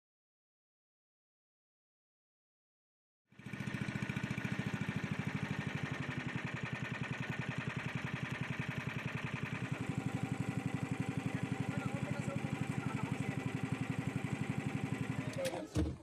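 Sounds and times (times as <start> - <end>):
boat engine puttering: 3.4 - 16.0.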